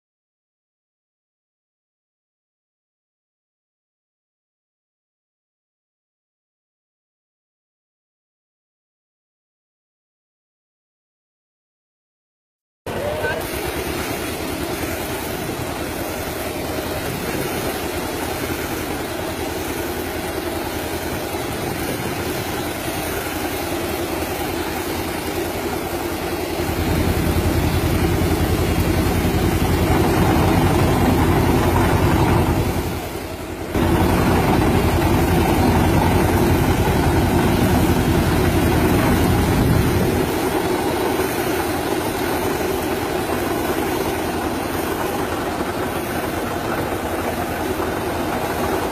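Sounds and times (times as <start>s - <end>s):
tractor engine running: 12.9s - 48.9s
sprayer blowing air: 13.0s - 48.9s.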